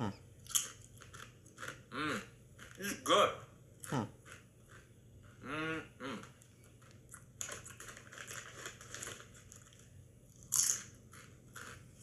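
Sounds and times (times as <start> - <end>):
potato chips crunching: 0.4 - 1.9, 6.8 - 11.9.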